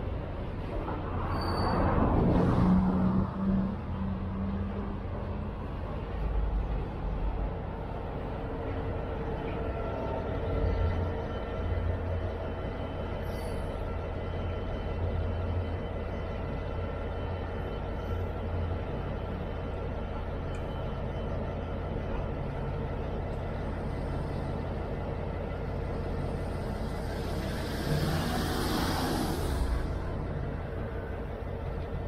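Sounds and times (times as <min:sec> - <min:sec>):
diesel locomotive engine humming: 0:00.0 - 0:32.0
air hissing from train brakes: 0:13.2 - 0:13.8, 0:26.3 - 0:30.1.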